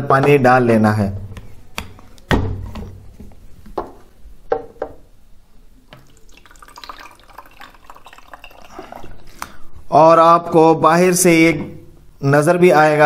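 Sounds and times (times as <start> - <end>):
water pouring into plastic tank: 5.9 - 9.6.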